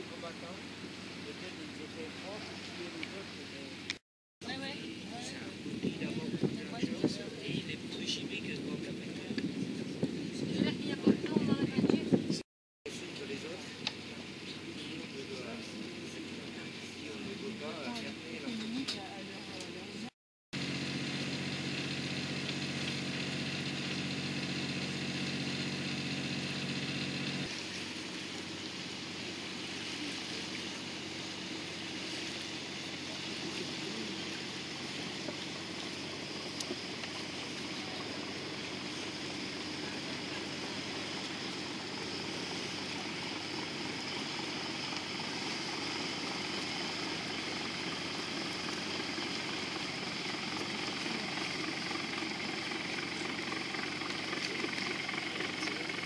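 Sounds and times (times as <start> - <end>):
water and wind noise: 0.0 - 12.4, 27.4 - 56.0
boat engine hum: 0.0 - 56.0.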